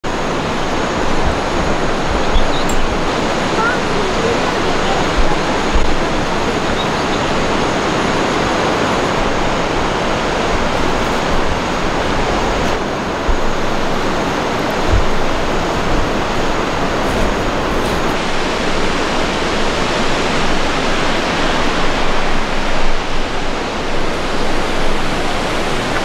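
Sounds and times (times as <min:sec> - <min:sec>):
low bumps: 0:00.0 - 0:18.5
waterfall rushing: 0:00.0 - 0:26.0.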